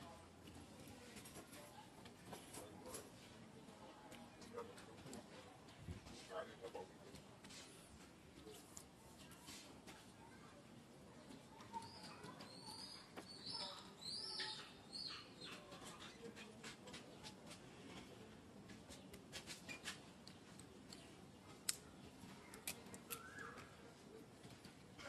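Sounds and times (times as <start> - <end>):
faint high chirping calls: 11.6 - 16.4, 23.0 - 24.0
sharp clicks and ticks: 20.2 - 23.3.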